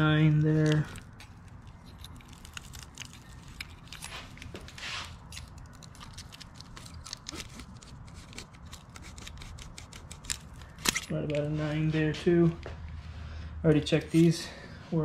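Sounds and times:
clicks and scrapes of tools: 0.4s - 11.5s.

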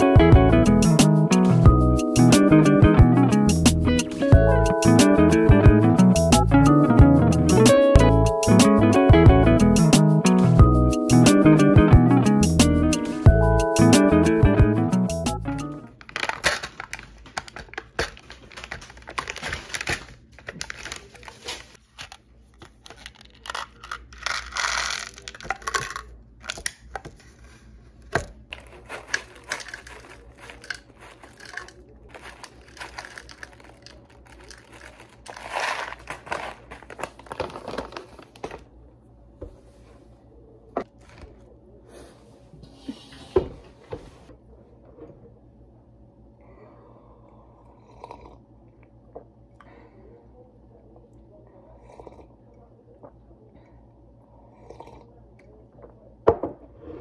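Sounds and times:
plastic crinkling and tearing: 15.9s - 27.7s, 28.5s - 38.6s
granola rattling into cup: 16.0s - 27.3s, 28.5s - 38.6s.

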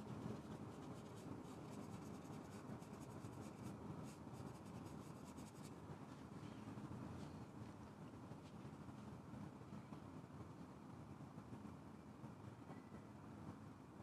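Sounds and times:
paintbrush scratching on panel: 0.0s - 5.7s
steady low hum: 0.0s - 14.0s.

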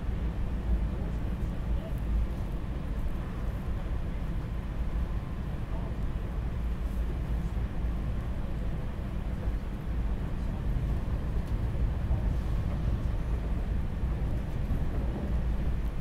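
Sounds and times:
train rumbling with hiss: 0.0s - 16.0s.

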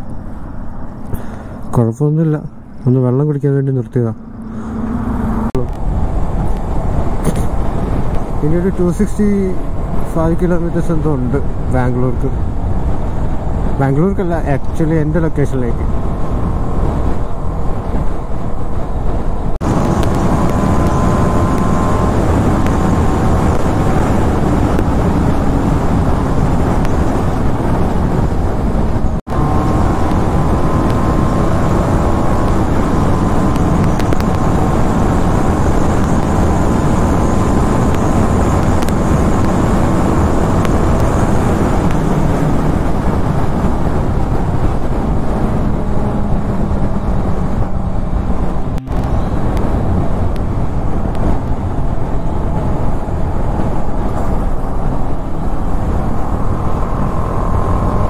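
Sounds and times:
wind noise on microphone: 3.8s - 58.0s
motorcycle engine running: 19.6s - 27.4s, 28.6s - 58.0s.

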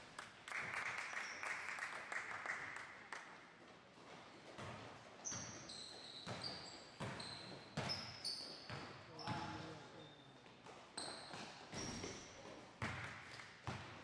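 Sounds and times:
basketball bouncing: 4.5s - 5.5s, 7.0s - 7.2s, 12.8s - 14.0s
sneaker squeaks on floor: 4.5s - 13.0s.

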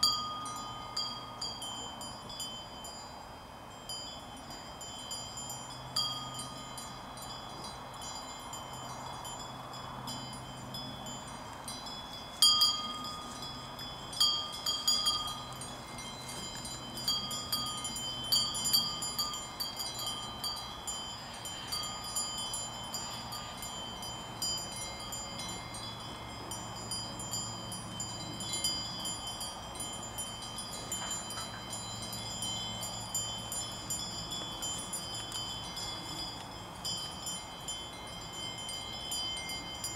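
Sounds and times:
cowbells clanking: 0.0s - 39.9s.

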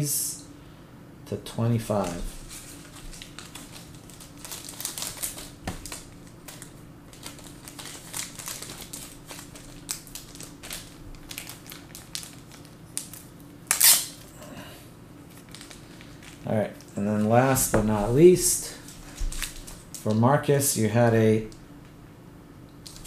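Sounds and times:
plastic rustle: 2.1s - 13.2s, 15.2s - 18.1s, 18.7s - 20.1s.

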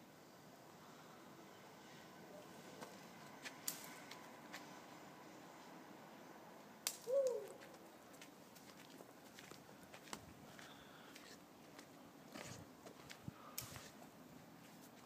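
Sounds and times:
rising and falling hoot: 7.0s - 7.6s.

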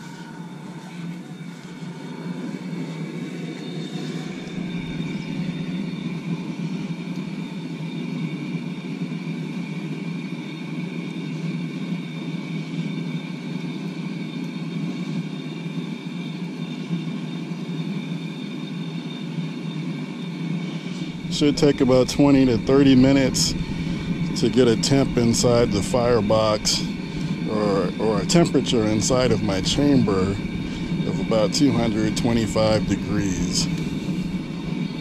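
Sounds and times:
gas burner flame rushing: 0.0s - 7.9s, 20.4s - 35.0s.

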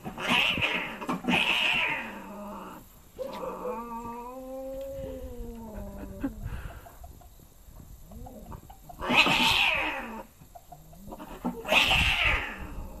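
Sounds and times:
cat growling yowl: 0.1s - 6.4s, 9.0s - 10.3s, 11.1s - 13.0s
cat hissing and spitting: 9.0s - 10.2s.

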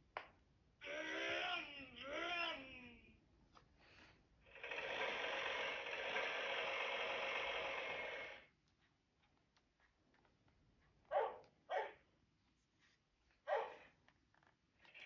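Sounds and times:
toy tractor engine sound effect: 0.8s - 2.8s, 4.5s - 8.5s.

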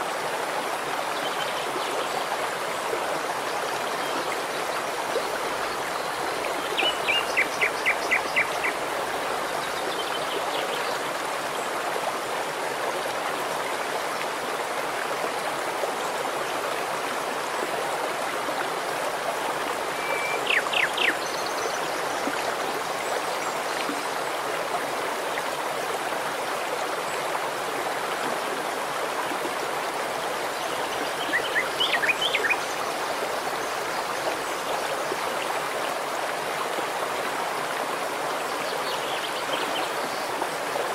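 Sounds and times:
stream flowing over stones: 0.0s - 40.9s
bird chirping: 20.0s - 21.6s.

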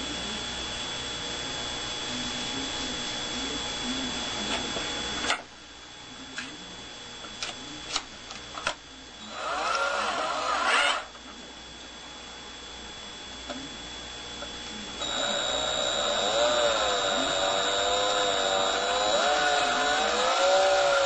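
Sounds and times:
cordless drill running: 9.2s - 11.1s, 15.0s - 21.0s
spinning rotor whirring: 9.2s - 11.1s, 15.0s - 21.0s.

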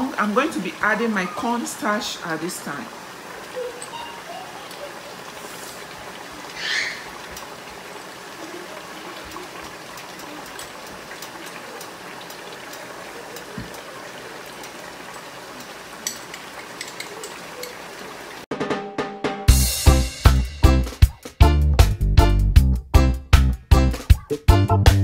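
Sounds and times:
sauce bubbling in a pot: 1.6s - 18.3s.

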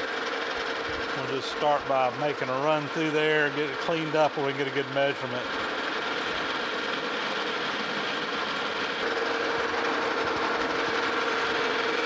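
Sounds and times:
metal lathe cutting steel: 0.0s - 12.0s.

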